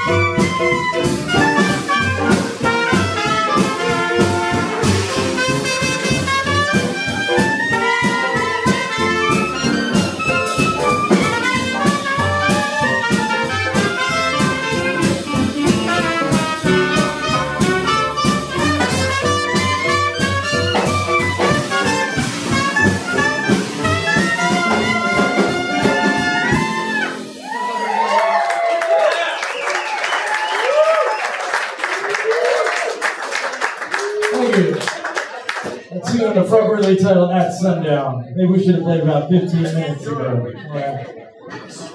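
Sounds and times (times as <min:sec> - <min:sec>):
jazz band playing live: 0:00.0 - 0:28.0.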